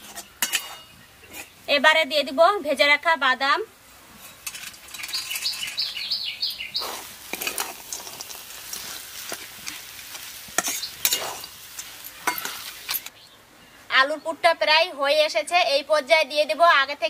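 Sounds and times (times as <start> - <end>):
metal spatula scraping a wok: 0.0 - 1.7, 4.1 - 6.0, 6.8 - 13.1
light sizzle: 0.0 - 13.8
bird chirping: 4.9 - 7.1, 10.6 - 13.9.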